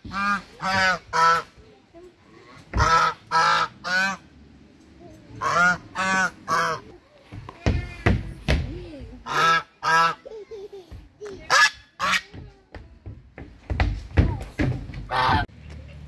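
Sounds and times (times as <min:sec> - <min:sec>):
geese honking: 0:02.8 - 0:04.2, 0:05.4 - 0:06.9, 0:15.1 - 0:15.5.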